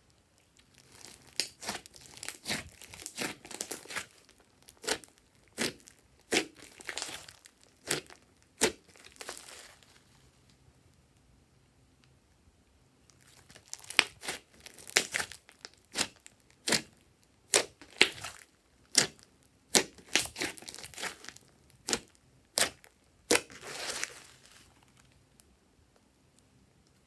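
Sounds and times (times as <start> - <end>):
slime crackling stretch: 0.4 - 10.2, 13.1 - 25.2
sticky slime popping: 0.8 - 9.7, 13.2 - 24.2.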